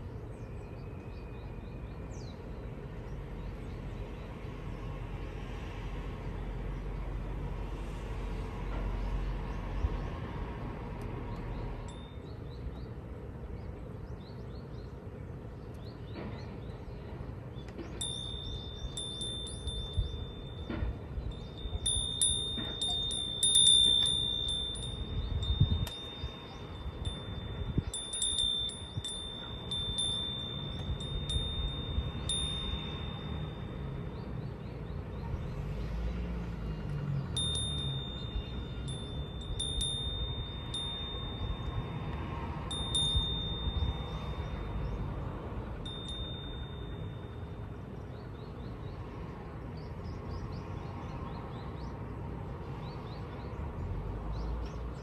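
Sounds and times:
low wind rumble: 0:00.0 - 0:55.0
wind chime ringing: 0:11.8 - 0:12.6, 0:17.8 - 0:34.6, 0:37.3 - 0:48.4.

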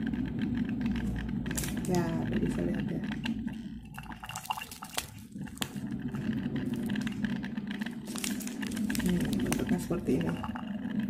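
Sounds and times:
electric water heater humming: 0:00.0 - 0:11.0
foil sachet crinkling: 0:04.2 - 0:10.6.

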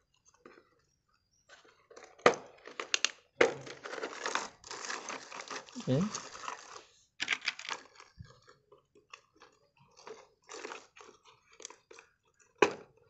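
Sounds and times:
plastic toy parts clicking: 0:07.2 - 0:08.1.

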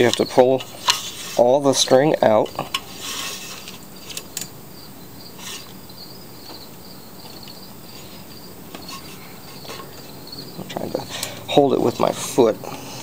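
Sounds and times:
insects trilling: 0:00.0 - 0:13.0
short rustle: 0:02.8 - 0:04.2.

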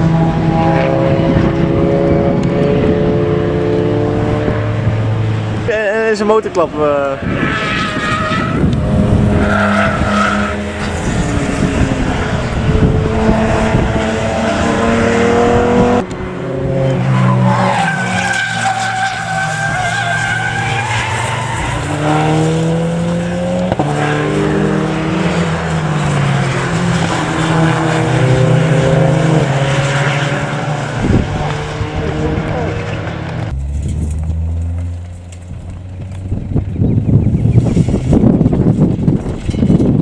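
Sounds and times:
racing car engines revving: 0:00.0 - 0:40.0
tyre squeal and skidding: 0:07.1 - 0:12.3, 0:16.8 - 0:22.5, 0:39.2 - 0:40.0.

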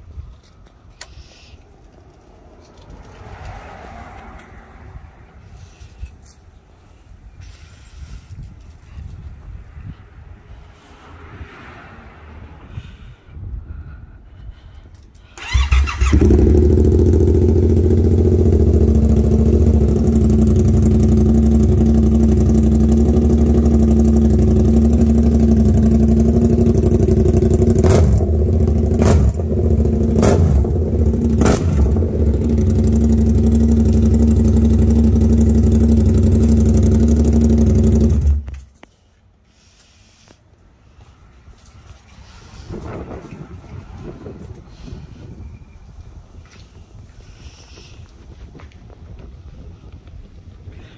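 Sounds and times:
motorcycle engine idling: 0:15.4 - 0:38.5.

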